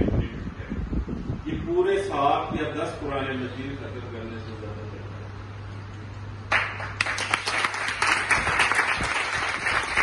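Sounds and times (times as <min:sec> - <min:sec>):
low steady hum: 0:00.0 - 0:10.0
audience applauding: 0:06.5 - 0:10.0.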